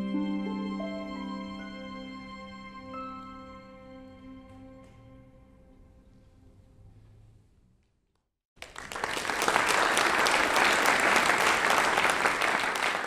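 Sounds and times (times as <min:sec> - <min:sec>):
chamber ensemble chord: 0:00.0 - 0:06.5
audience applause: 0:08.6 - 0:13.0.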